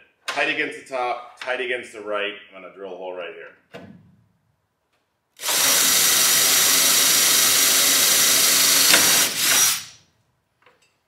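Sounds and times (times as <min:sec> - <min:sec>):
cordless drill drilling metal: 0:05.4 - 0:10.0.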